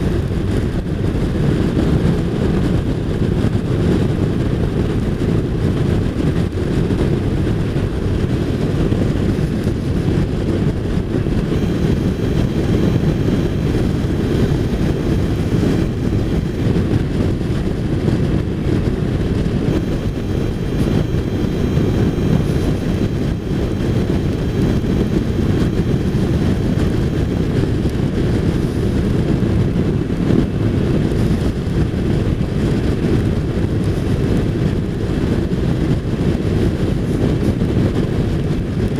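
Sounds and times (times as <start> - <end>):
wind rush and road noise: 0.0 - 38.9
motorcycle engine: 6.6 - 32.1.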